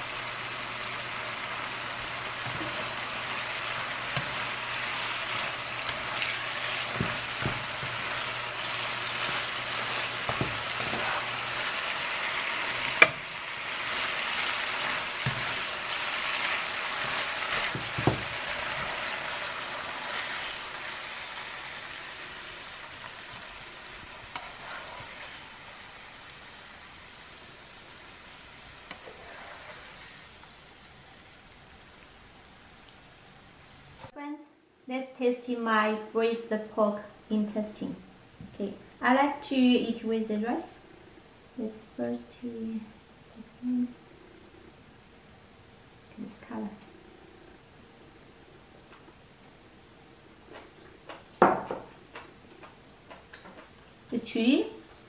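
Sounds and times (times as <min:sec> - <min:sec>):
food sizzling in a frying pan: 0:00.0 - 0:34.1
spatula scraping a pan: 0:01.5 - 0:20.6, 0:24.2 - 0:25.7, 0:28.8 - 0:30.3.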